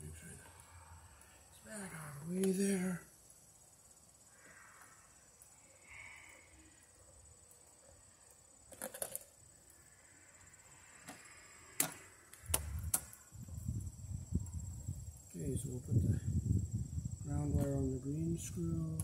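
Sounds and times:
high-pitched insect drone: 0:00.0 - 0:07.0.

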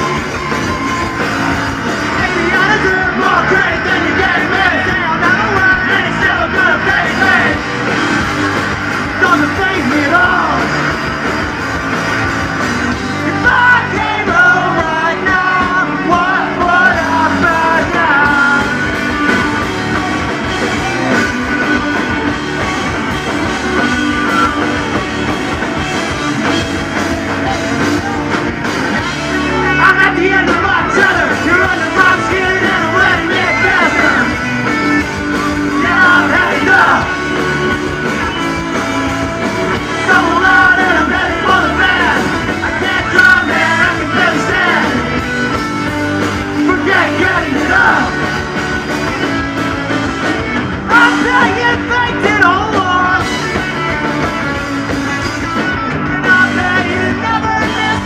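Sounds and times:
bass guitar: 0:00.0 - 0:58.0
distorted electric guitars: 0:00.0 - 0:58.0
drums: 0:00.0 - 0:58.0
sung and shouted vocals: 0:02.0 - 0:08.3, 0:09.1 - 0:10.9, 0:13.1 - 0:18.9, 0:29.4 - 0:34.5, 0:35.5 - 0:37.3, 0:39.8 - 0:45.3, 0:46.5 - 0:48.3, 0:50.9 - 0:53.3.

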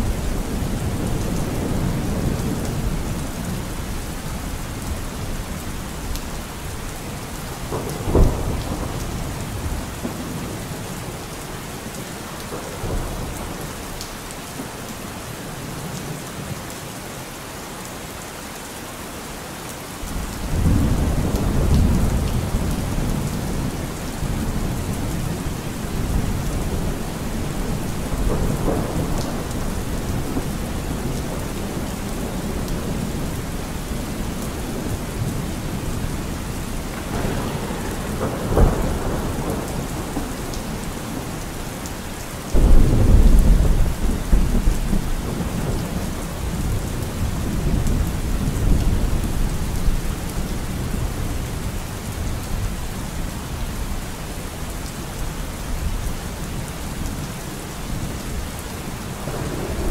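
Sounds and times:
steady rain: 0:00.0 - 0:59.9
thunder crack and rumble: 0:07.4 - 0:11.1, 0:20.1 - 0:41.8, 0:42.5 - 0:51.4, 0:59.2 - 0:59.9.

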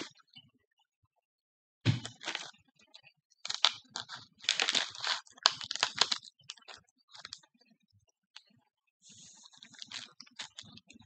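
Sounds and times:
plastic packaging crinkling: 0:02.0 - 0:02.5, 0:03.5 - 0:07.4, 0:09.5 - 0:10.8.

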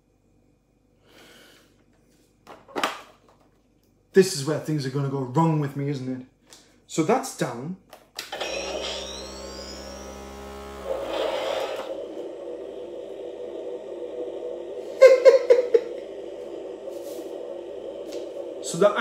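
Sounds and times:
electronic hum: 0:08.3 - 0:19.0
electronic whine sweeping: 0:08.4 - 0:19.0.

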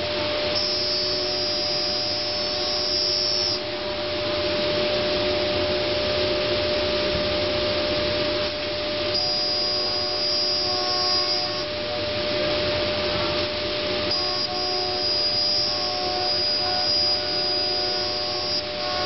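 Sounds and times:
cnc router running: 0:00.0 - 0:19.0
high machine whine: 0:00.0 - 0:19.0.

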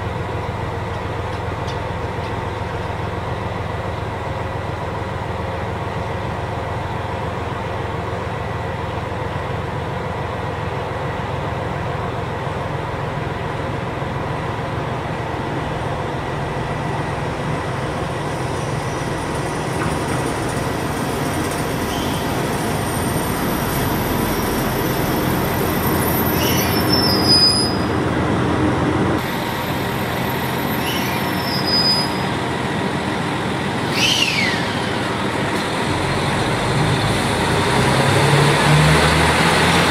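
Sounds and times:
diesel train drone: 0:00.0 - 0:39.9
wheel and brake squeals: 0:18.4 - 0:28.0, 0:30.3 - 0:32.4, 0:33.9 - 0:35.1.

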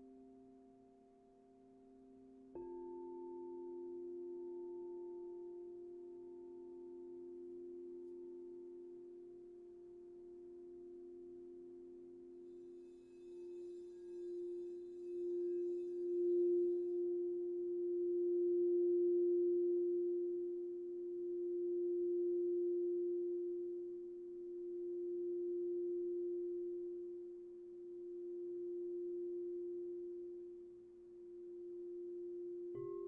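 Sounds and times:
singing bowl ringing: 0:10.8 - 0:33.0
mallet rubbing bowl rim: 0:12.6 - 0:17.0.

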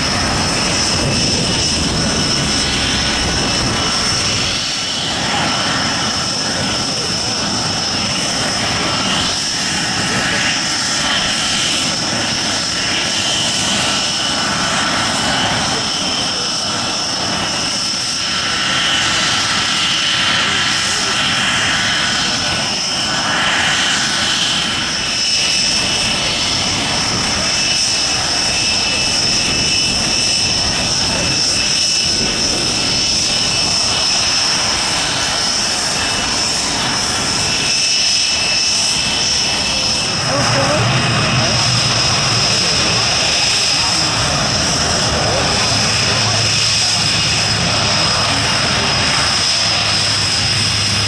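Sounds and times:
jet engine idling whine: 0:00.0 - 0:51.0.

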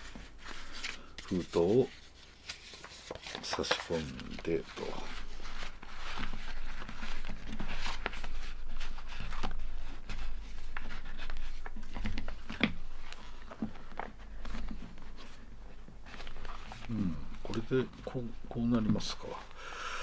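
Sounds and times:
paper rustling and scraping: 0:00.0 - 0:19.5.

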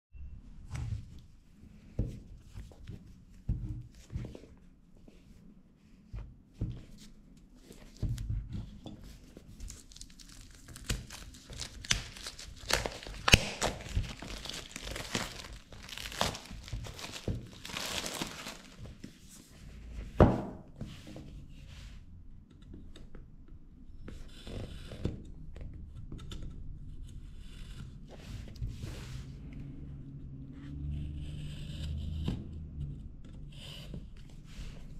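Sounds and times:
plastic shrink wrap crinkling: 0:09.5 - 0:19.0.

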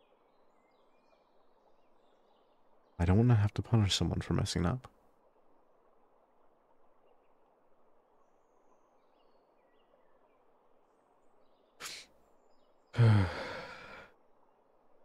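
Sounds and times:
faint bird chirps: 0:00.0 - 0:14.8
man breathing in sharply: 0:13.0 - 0:14.1
man sighing loudly: 0:13.0 - 0:14.1.

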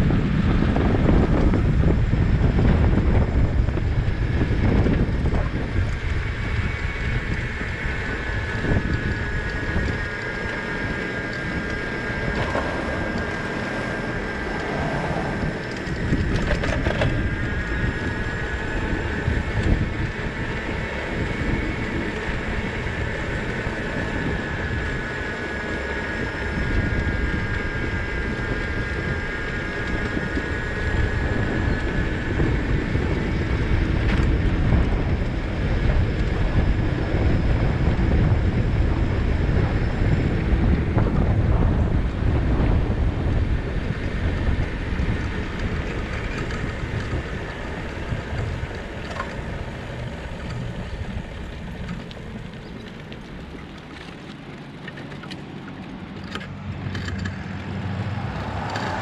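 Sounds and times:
high whine: 0:00.0 - 0:53.6, 0:54.9 - 0:59.0
bicycle tyres on paved road: 0:00.0 - 0:59.0
wind buffeting microphone: 0:00.0 - 0:59.0
rattle of clicks: 0:15.6 - 0:17.7, 0:50.4 - 0:57.8.

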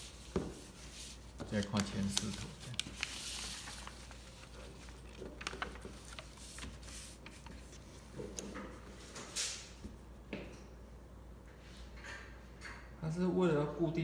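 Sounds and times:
paper rustling: 0:00.0 - 0:09.6.

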